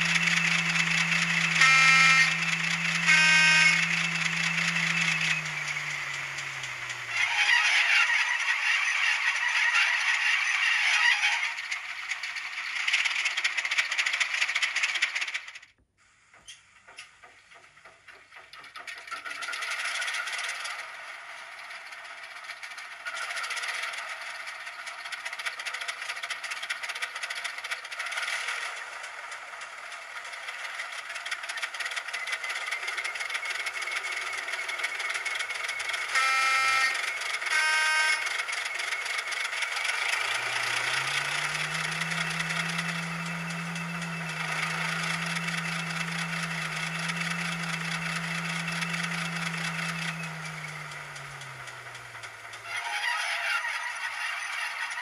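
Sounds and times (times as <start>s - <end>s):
locomotive horn blasts: 0.0s - 6.6s, 36.1s - 38.6s, 39.9s - 52.0s
diesel locomotive engine rattling: 0.0s - 15.6s, 16.2s - 55.0s.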